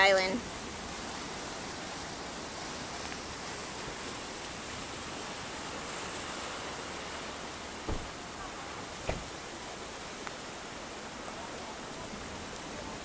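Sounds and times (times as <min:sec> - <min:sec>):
surf washing over rocks: 0:00.0 - 0:13.0
low thump: 0:07.8 - 0:08.2, 0:09.0 - 0:09.3.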